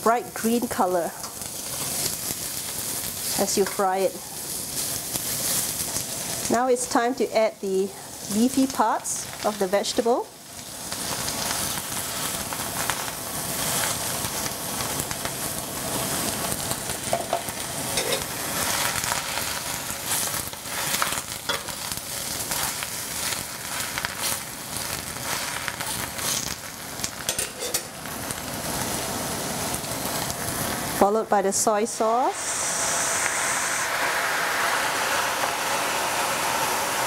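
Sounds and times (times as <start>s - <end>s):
greens sizzling in hot oil: 0.0s - 37.0s
utensil scraping a wok: 0.5s - 6.3s, 17.1s - 26.5s, 27.2s - 28.0s.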